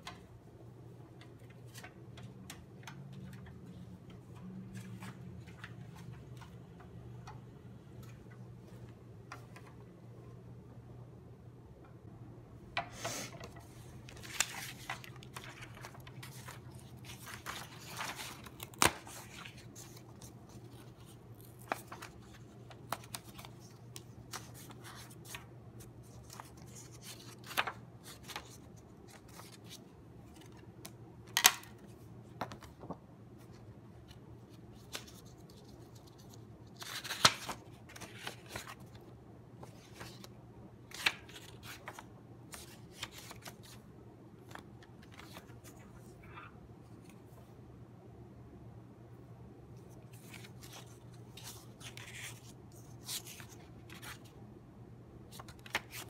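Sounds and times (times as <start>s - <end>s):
faint low hum: 0.0s - 56.0s
paper rustling and sliding: 12.8s - 30.6s.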